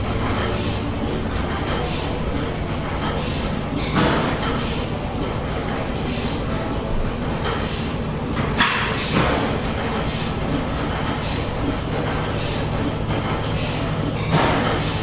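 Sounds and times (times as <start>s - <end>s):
old gas engines droning: 0.0s - 15.0s.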